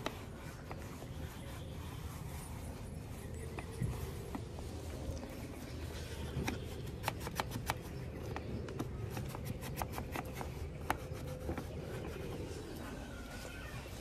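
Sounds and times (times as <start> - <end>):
low steady rumble: 0.0 - 7.1
damp rag rubbing plastic trim: 0.0 - 14.0.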